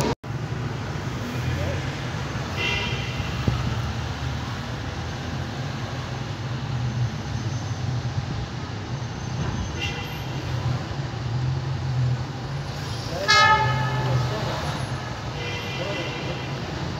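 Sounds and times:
city street traffic rumble: 0.0s - 16.9s
car horn toot: 13.3s - 14.3s.

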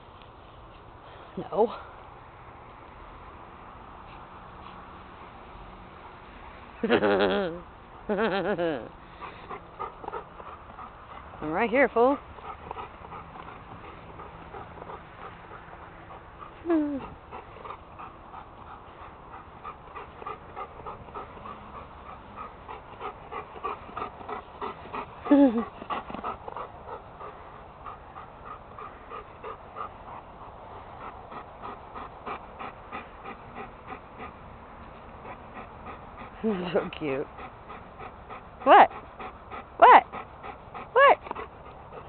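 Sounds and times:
dog panting: 8.8s - 42.0s.

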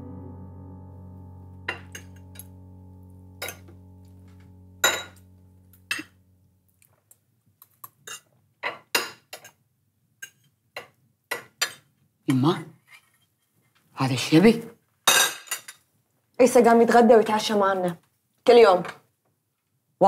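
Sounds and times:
held music chord: 0.0s - 6.7s
cutlery clinking on china plates: 7.8s - 9.6s, 15.1s - 15.8s.

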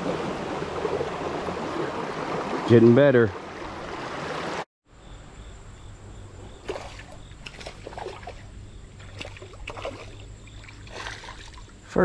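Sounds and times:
fish thrashing and splashing: 6.6s - 11.8s.

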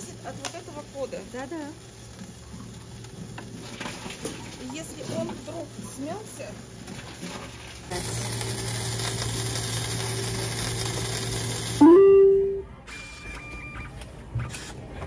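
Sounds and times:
conveyor humming: 0.0s - 15.0s
receipt printer running: 7.9s - 11.8s, 12.8s - 14.0s
rising electronic beep: 11.8s - 14.0s.

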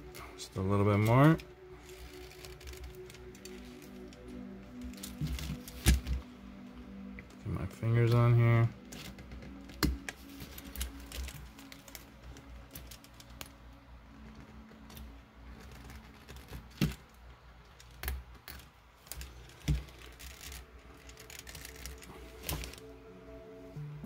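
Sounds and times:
small clicks and rubbing: 8.9s - 22.9s.

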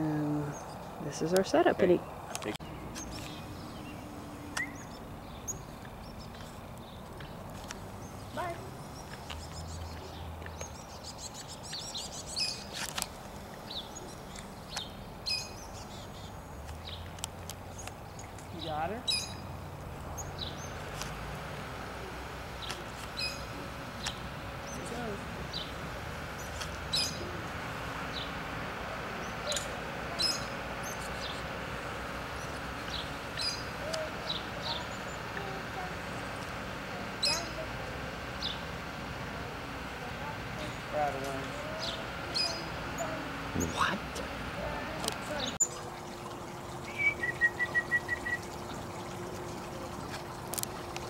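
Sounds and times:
steady background noise: 0.0s - 51.0s
chickadee chirping: 20.1s - 45.8s.

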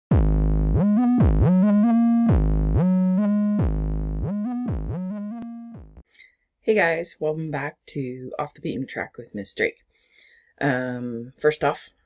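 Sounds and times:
electronic synthesizer music: 0.1s - 6.0s.

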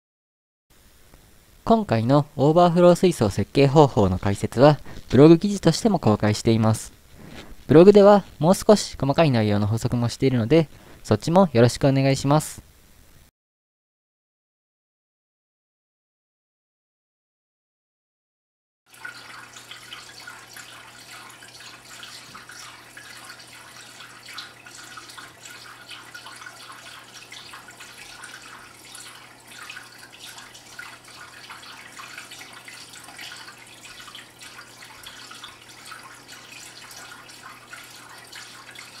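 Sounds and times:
water trickling into aquarium: 18.9s - 39.0s.

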